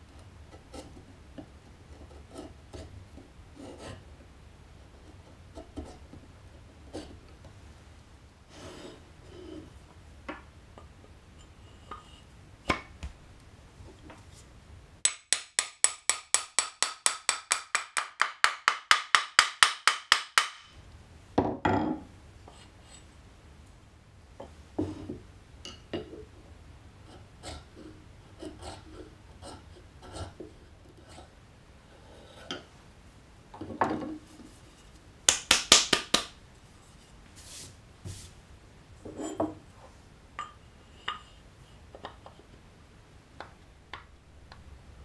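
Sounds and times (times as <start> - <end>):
hammer tapping steel blade: 15.0 - 20.7
hand tools clicking on wood: 15.0 - 20.7.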